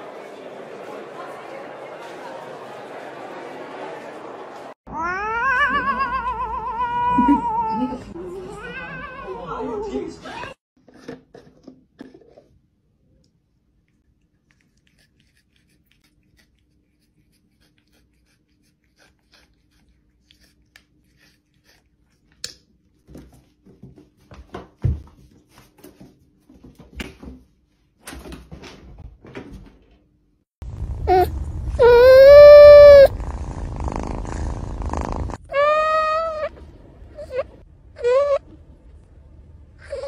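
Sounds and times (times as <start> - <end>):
cat meowing: 4.9 - 7.9, 31.1 - 33.1, 35.5 - 36.5.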